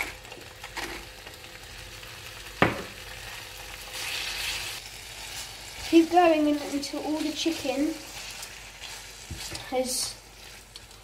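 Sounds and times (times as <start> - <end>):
chicken sizzling in a frying pan: 0.0 - 11.0
spatula scraping a pan: 3.9 - 11.0.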